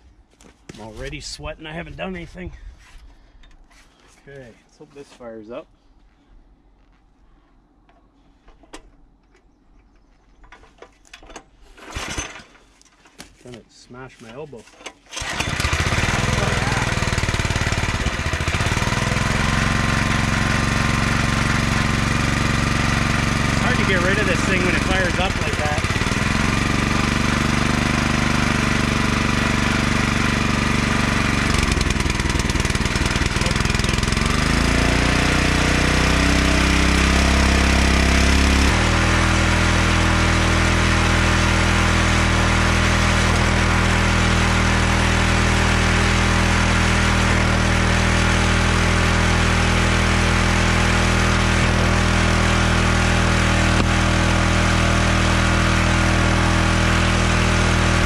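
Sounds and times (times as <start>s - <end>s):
small gasoline engine running: 15.1s - 58.0s.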